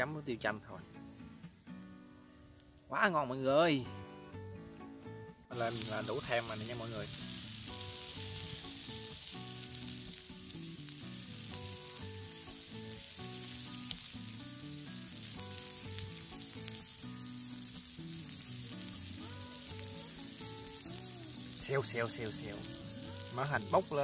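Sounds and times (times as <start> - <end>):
soft background music: 0.0 - 24.0
mussels sizzling on grill: 1.2 - 24.0.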